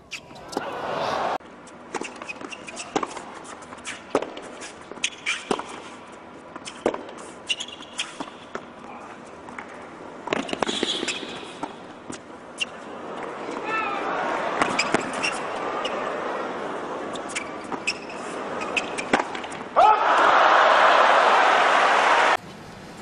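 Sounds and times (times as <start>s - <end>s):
shoe squeaks on court: 1.6s - 8.7s, 10.3s - 12.8s, 14.6s - 16.0s, 17.1s - 19.6s
ball bouncing on court: 10.3s - 11.8s
racquet striking tennis ball: 10.3s - 11.8s, 17.6s - 19.7s.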